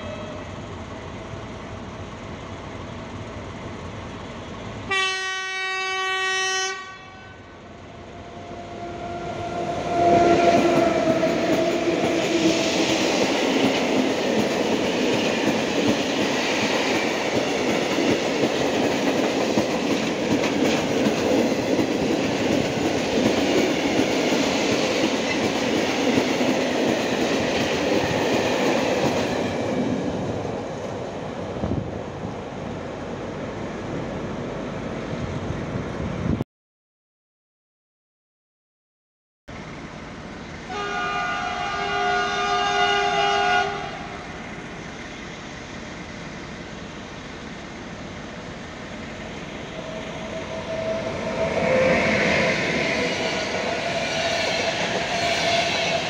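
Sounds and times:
electric locomotive horn: 0.0 - 0.5, 4.9 - 12.5, 40.7 - 44.4, 49.7 - 56.0
train rumble and wheel clatter: 0.0 - 36.4, 39.5 - 56.0.

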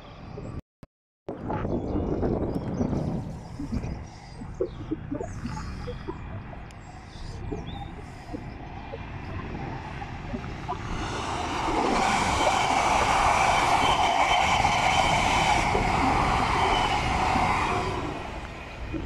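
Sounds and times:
high whine: 1.3 - 19.0
train wheels rushing on rails: 10.1 - 19.0.

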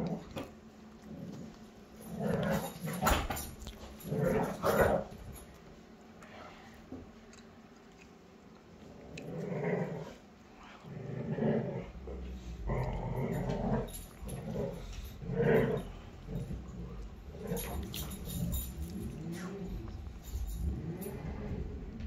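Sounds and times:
dogs growling: 0.0 - 5.6, 8.8 - 22.0.

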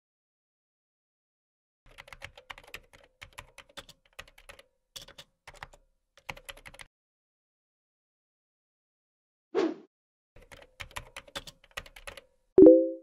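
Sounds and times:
typing on a keyboard: 1.9 - 6.9, 10.4 - 12.3.

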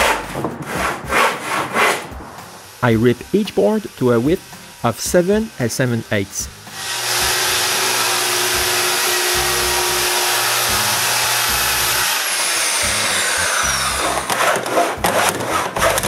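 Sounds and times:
funk background music: 0.0 - 7.7, 8.5 - 12.0, 12.8 - 16.0
hand saw cutting wood: 0.0 - 16.0
track saw cutting wood: 0.0 - 16.0
saw motor whine winding down: 2.4 - 14.3.

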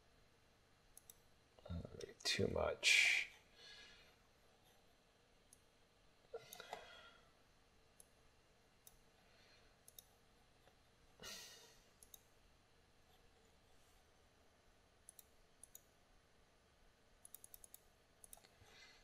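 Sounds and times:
computer mouse clicks: 1.0 - 1.3, 6.5 - 6.8, 8.0 - 8.2, 8.8 - 9.1, 9.8 - 10.8, 12.0 - 12.3, 15.1 - 15.9, 17.2 - 18.6
soft breath: 3.4 - 4.8, 6.3 - 7.4, 9.1 - 9.8, 18.5 - 19.0.

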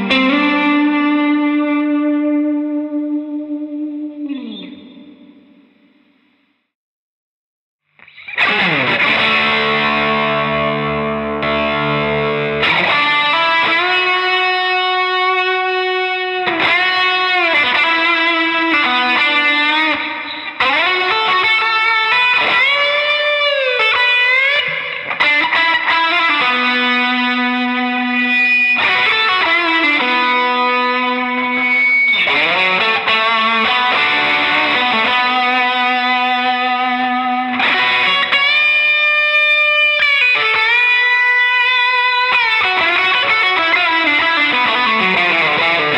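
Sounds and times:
distorted electric guitar lead: 0.0 - 6.2, 8.0 - 45.9.

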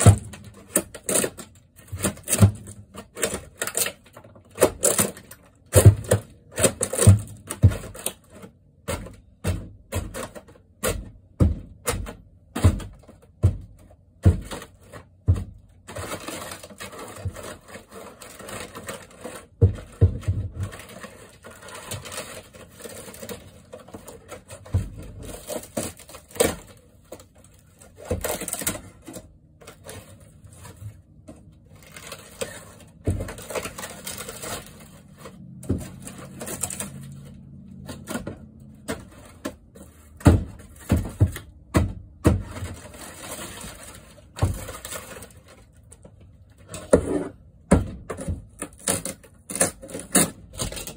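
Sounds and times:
wood paneling cracking and splintering: 0.0 - 50.9.

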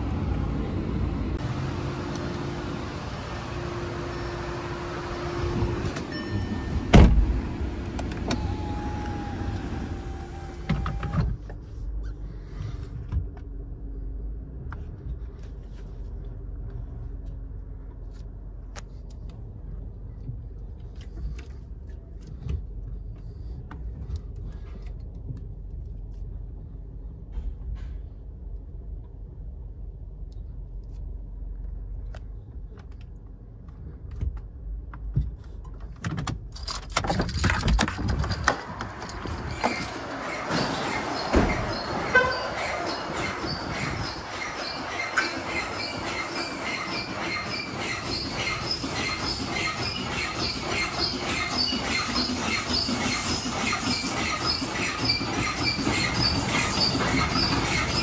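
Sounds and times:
car idling rumble: 0.0 - 36.5.

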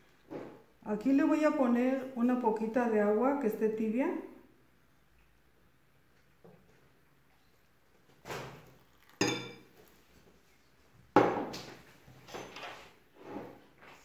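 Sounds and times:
glass jug clinking on glass bowl: 9.1 - 9.7.

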